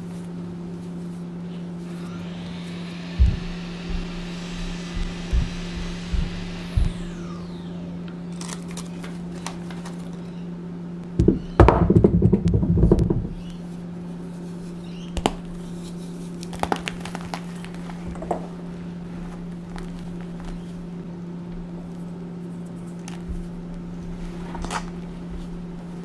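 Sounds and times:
steady low hum: 0.0s - 26.0s
chalk crunching: 14.2s - 20.9s.

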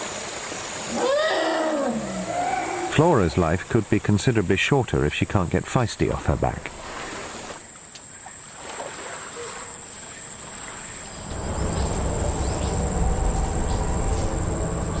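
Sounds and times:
boat engine hum: 1.9s - 15.0s
high-pitched insect whine: 7.0s - 15.0s.

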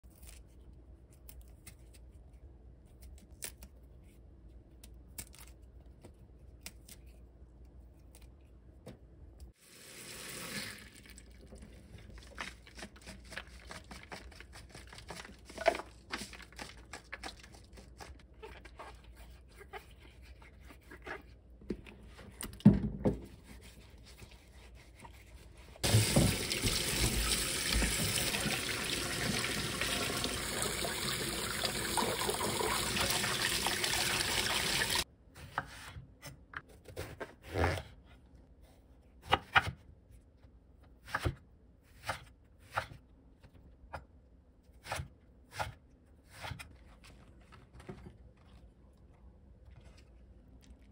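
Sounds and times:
tap water running into bowl: 25.8s - 35.0s.

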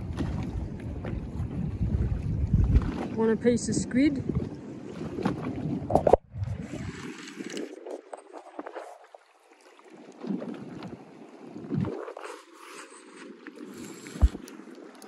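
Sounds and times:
wind gusting on microphone: 0.0s - 7.0s
water against boat hull: 0.0s - 15.0s.

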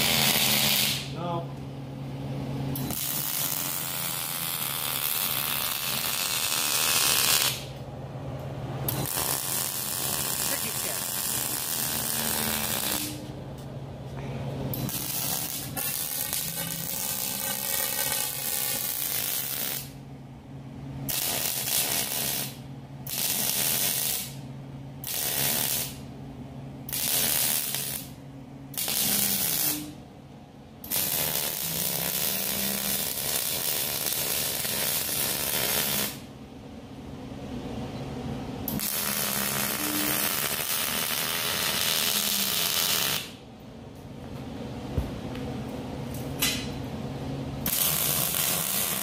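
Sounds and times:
welder arc crackling: 0.0s - 1.2s, 2.8s - 7.8s, 8.9s - 13.3s, 14.7s - 20.0s, 21.1s - 24.4s, 25.0s - 26.1s, 26.9s - 28.2s, 28.8s - 29.9s, 30.8s - 36.3s, 38.7s - 43.4s, 47.6s - 49.0s
steady low hum: 0.0s - 49.0s.

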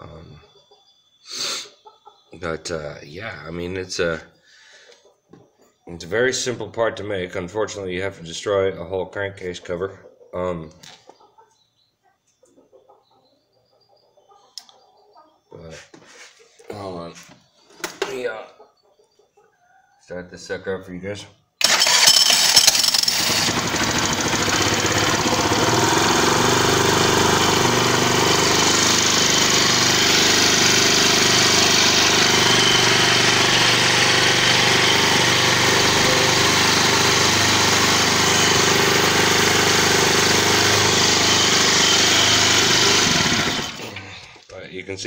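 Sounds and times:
scooter engine running: 21.6s - 44.1s.

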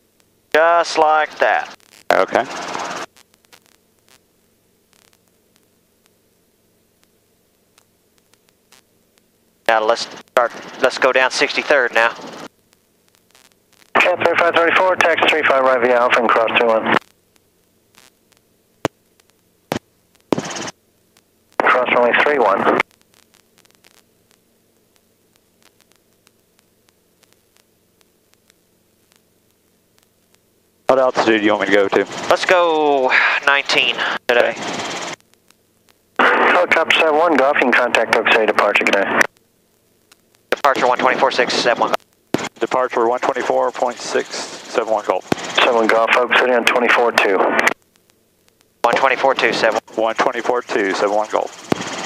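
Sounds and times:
faint low hum: 0.0s - 52.0s
faint static hiss: 0.0s - 52.0s
faint clicks: 7.0s - 9.3s, 22.8s - 30.4s, 39.2s - 40.6s, 47.7s - 48.7s.

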